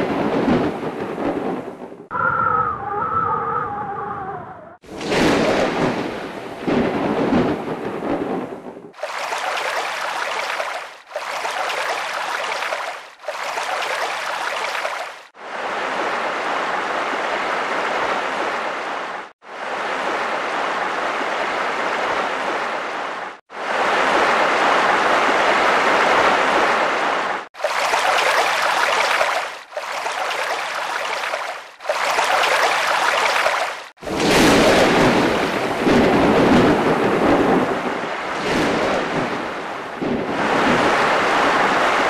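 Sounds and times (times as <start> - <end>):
water rushing and splashing: 8.9 - 42.0.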